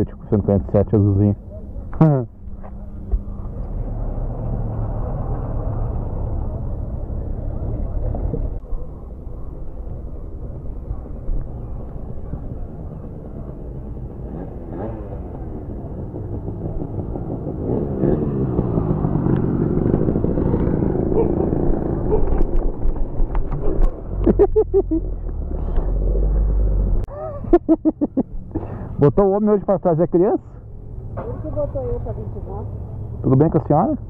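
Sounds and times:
two-stroke motorcycle engine: 0:12.0 - 0:24.2.

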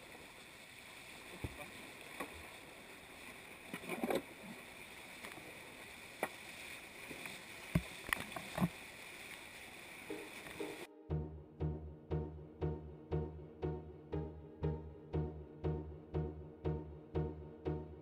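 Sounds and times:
kayak knocking and splashing: 0:06.1 - 0:08.8, 0:10.0 - 0:10.9.

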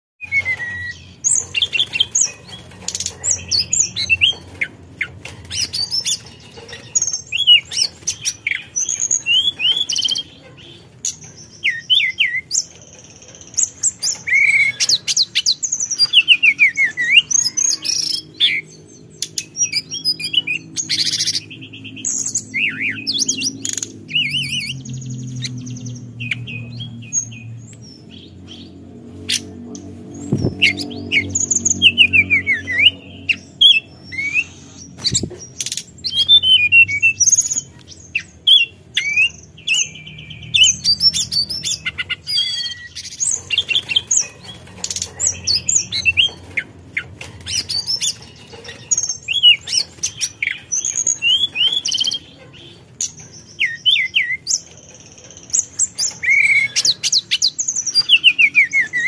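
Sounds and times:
bird singing whistled song: 0:00.2 - 0:02.3, 0:11.5 - 0:28.6, 0:30.2 - 0:43.9, 0:53.4 - 0:59.0.

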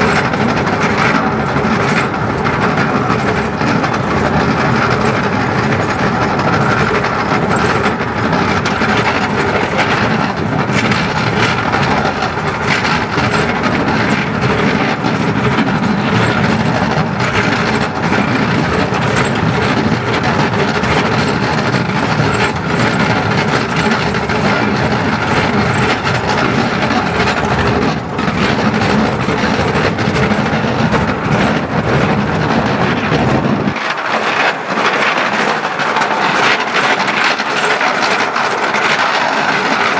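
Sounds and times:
train wheels rumbling on rails: 0:00.0 - 0:39.9
wheel clacks: 0:00.0 - 0:39.9.

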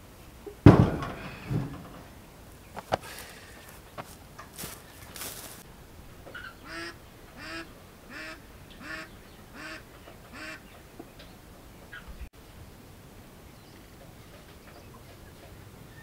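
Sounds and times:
bird calling: 0:02.6 - 0:05.6, 0:06.3 - 0:12.2.

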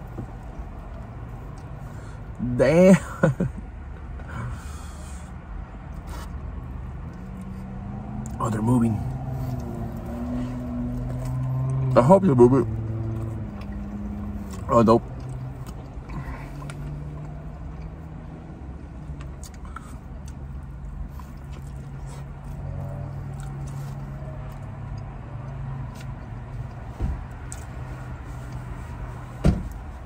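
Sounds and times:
chewing and mouth clicks: 0:13.0 - 0:18.2, 0:19.0 - 0:28.9
thump: 0:29.4 - 0:29.8.

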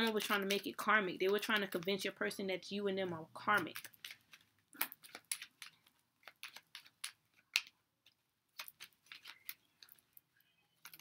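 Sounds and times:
cards being shuffled: 0:03.4 - 0:10.2.

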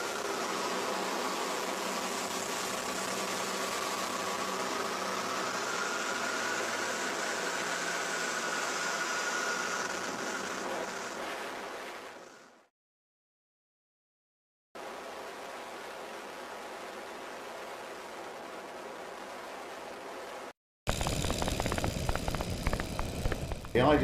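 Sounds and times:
biplane engine drone: 0:00.0 - 0:12.6, 0:20.9 - 0:24.0.

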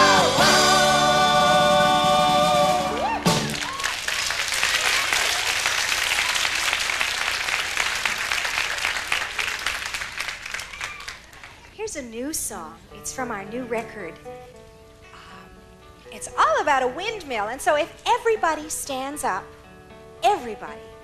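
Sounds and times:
singers and band holding chord: 0:00.0 - 0:03.6
audience applauding: 0:00.0 - 0:11.8.

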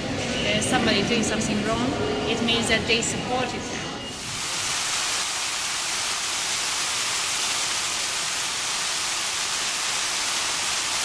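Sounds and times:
steady high hiss: 0:04.1 - 0:11.0.

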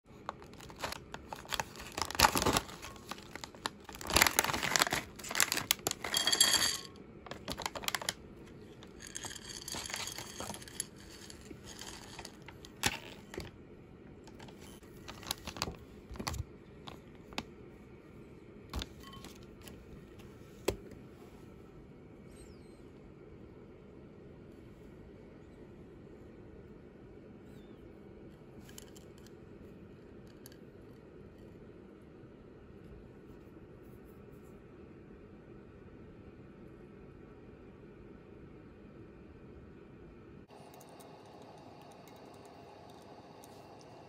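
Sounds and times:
plastic snack bag crinkling and tearing: 0:00.1 - 0:08.2, 0:08.8 - 0:13.5, 0:14.3 - 0:17.4
chocolate pieces pouring onto plate: 0:04.0 - 0:08.1, 0:08.8 - 0:13.0.

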